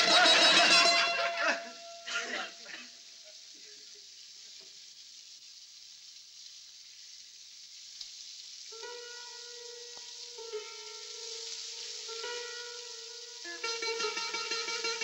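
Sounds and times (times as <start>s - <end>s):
old film soundtrack hiss: 0.0s - 15.0s
held note of background music: 8.8s - 15.0s.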